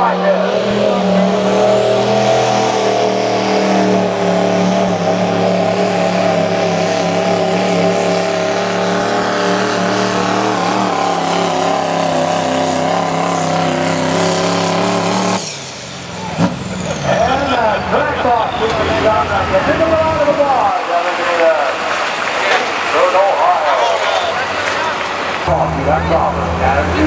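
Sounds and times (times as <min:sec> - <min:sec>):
diesel engine at full throttle: 0:00.0 - 0:27.0.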